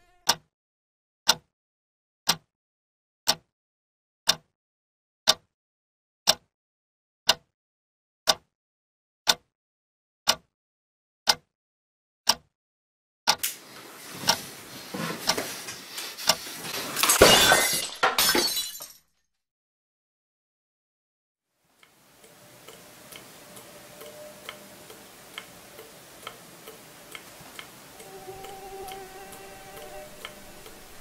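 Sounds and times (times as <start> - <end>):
clock ticking: 0.2 - 0.4, 1.3 - 1.5, 2.3 - 2.5, 3.3 - 3.5, 4.3 - 4.5, 5.3 - 5.5, 6.3 - 6.5, 7.3 - 7.5, 8.3 - 8.5, 9.3 - 9.5, 10.3 - 10.5, 11.3 - 11.5, 12.3 - 12.5, 13.3 - 16.5, 21.8 - 31.0
crashing and shattering: 16.9 - 19.0.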